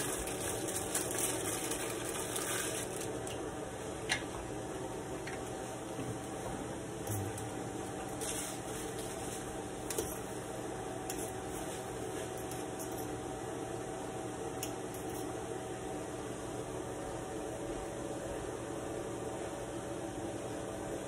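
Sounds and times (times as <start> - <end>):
kitchen hum and hiss: 0.0 - 21.0.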